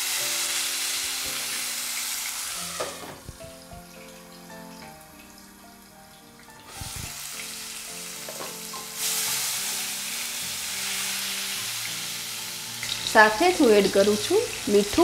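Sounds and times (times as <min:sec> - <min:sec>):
faint background music: 0:00.0 - 0:15.0
tomato sizzling in hot oil: 0:00.0 - 0:15.0.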